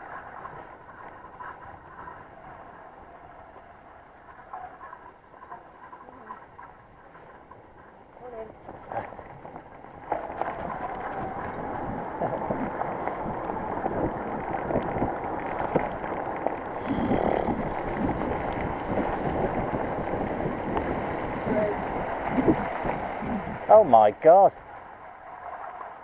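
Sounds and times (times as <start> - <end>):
bike tyres rushing on dirt: 0.0 - 26.0
wind on microphone: 8.3 - 25.4.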